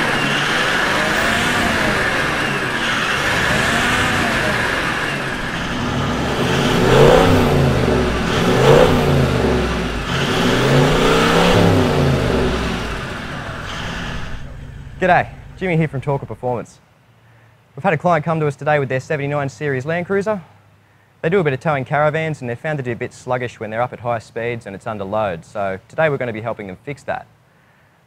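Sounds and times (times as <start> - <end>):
diesel engine revving: 0.0 - 16.5.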